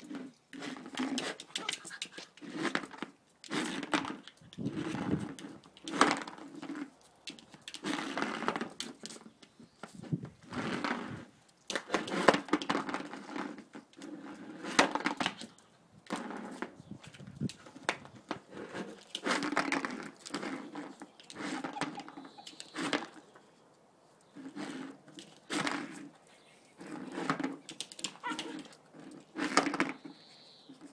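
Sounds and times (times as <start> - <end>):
sharp cracks and crackling: 27.2 - 30.0.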